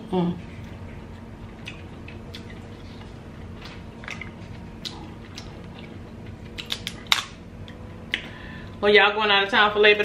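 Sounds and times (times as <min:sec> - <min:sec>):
quiet chewing: 0:00.6 - 0:08.3.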